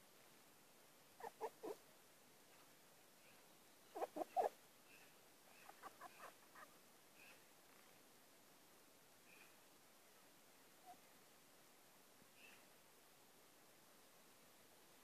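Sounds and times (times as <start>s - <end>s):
foxes giving short calls: 1.2s - 1.8s, 3.9s - 7.4s.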